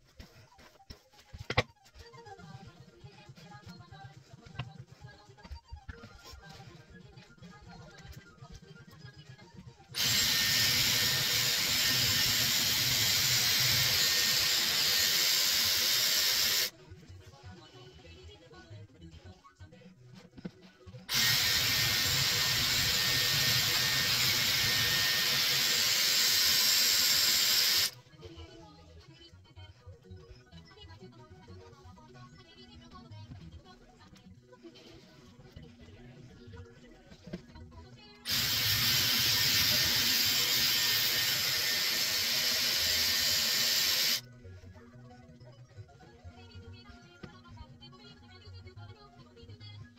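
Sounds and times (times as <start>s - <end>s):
hair styler blowing air: 10.0s - 16.7s, 21.1s - 28.0s, 38.3s - 44.2s.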